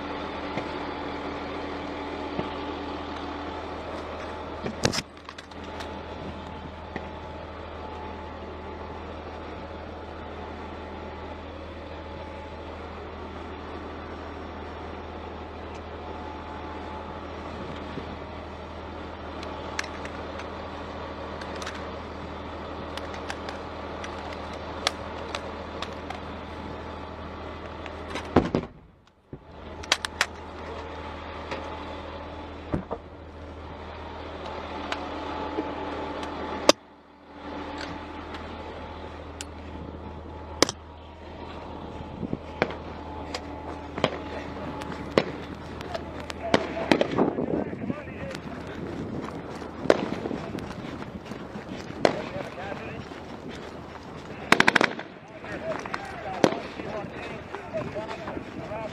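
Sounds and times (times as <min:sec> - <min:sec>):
military vehicle engine running: 0:00.0 - 0:58.9
loud gunshots: 0:46.5 - 0:47.3, 0:54.5 - 0:55.1
gunfire cracks: 0:54.5 - 0:55.1.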